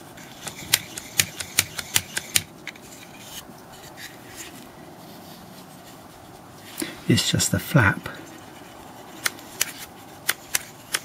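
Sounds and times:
wooden mechanism clicking: 0.3 - 2.9, 9.2 - 11.0.

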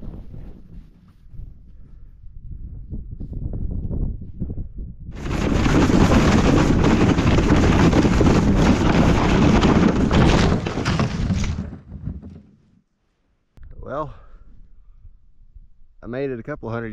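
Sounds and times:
wind over microphone: 0.0 - 10.7, 14.4 - 16.0
sled scraping over snow: 5.2 - 12.4.

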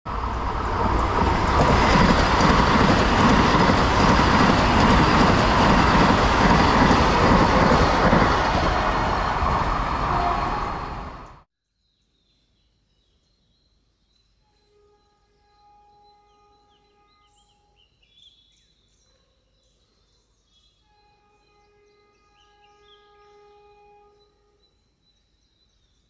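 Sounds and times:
train passing at speed: 0.1 - 11.5.

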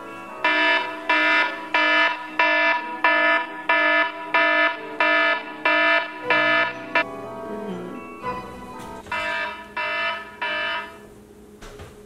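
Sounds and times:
smartphone alarm beeping: 9.1 - 11.0.

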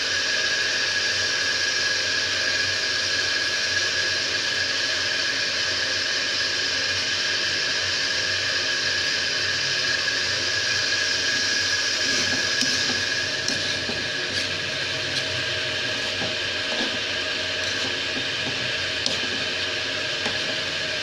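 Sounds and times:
vegetables sizzling in hot oil: 9.0 - 21.0.

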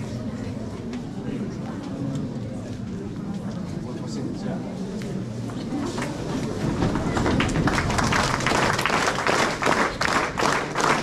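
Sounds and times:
audience applauding: 6.8 - 11.0.

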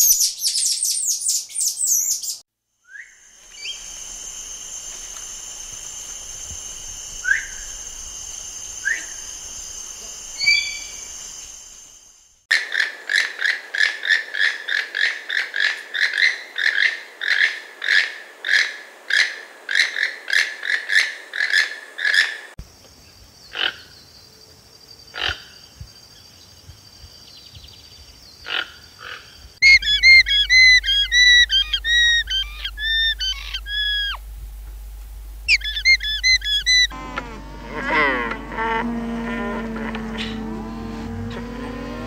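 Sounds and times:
toucan croaking calls: 10.4 - 11.0, 28.4 - 34.3, 35.5 - 42.0
vicuna shrill quavering call: 29.6 - 34.2, 35.5 - 42.0
steady high whine: 29.8 - 42.0.

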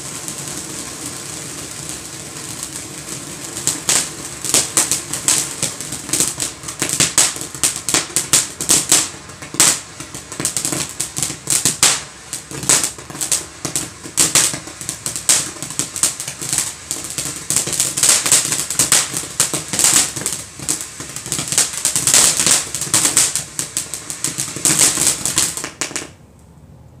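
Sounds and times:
firework fountain crackling: 0.0 - 26.2.

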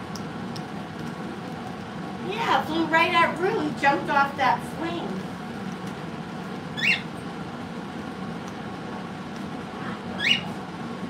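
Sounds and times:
low background hum: 0.0 - 11.0
parrot squeaking: 6.8 - 7.1, 10.2 - 10.6.

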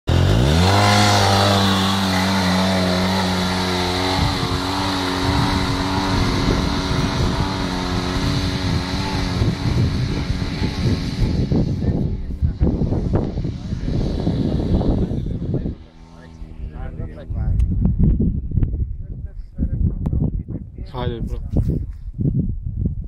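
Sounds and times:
engine revving under full throttle: 0.1 - 17.4.

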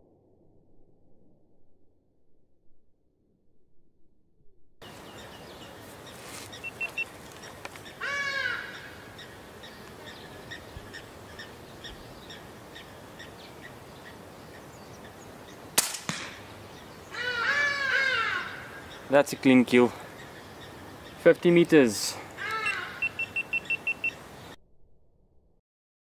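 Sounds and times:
faint chirping: 4.8 - 8.0, 22.4 - 24.6
bird harsh call: 4.8 - 15.6, 16.7 - 24.6
air rifle shot: 15.8 - 16.5.

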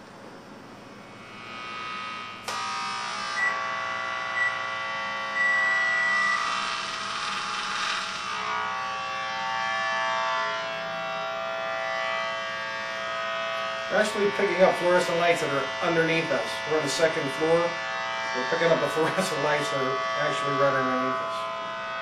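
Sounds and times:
electronic buzz of several tones: 1.1 - 16.8.

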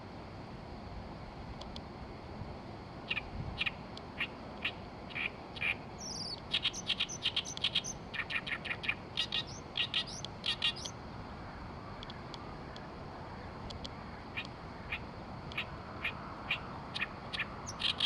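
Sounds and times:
reed warbler singing: 3.1 - 11.0, 14.3 - 18.0.

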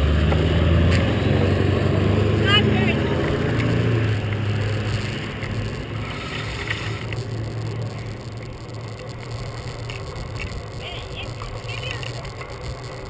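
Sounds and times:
bicycle tyres rolling on pavement: 0.0 - 13.0
low hum: 0.0 - 13.0
wind buffeting camera: 6.6 - 13.0.

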